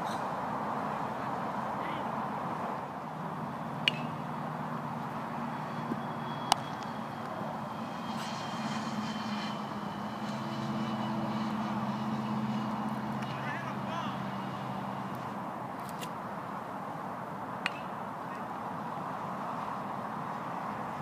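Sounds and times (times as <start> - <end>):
low engine drone: 3.0 - 15.8.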